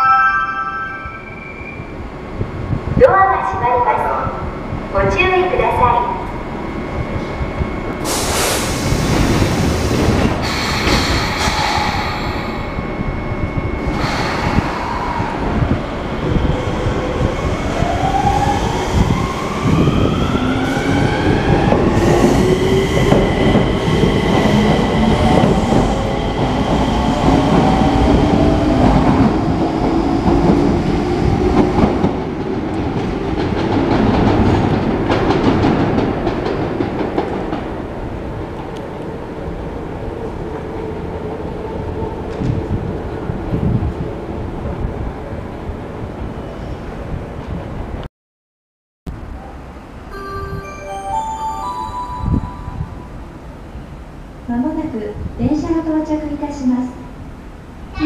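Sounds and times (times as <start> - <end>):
rumble of running train: 1.8 - 48.0.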